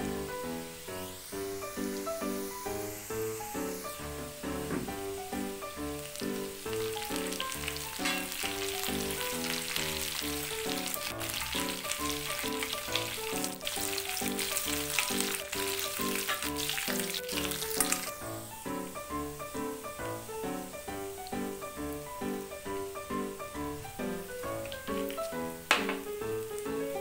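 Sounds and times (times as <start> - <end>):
background music: 0.0 - 27.0
spices sizzling in hot oil: 0.0 - 27.0
spoon stirring: 6.8 - 8.9.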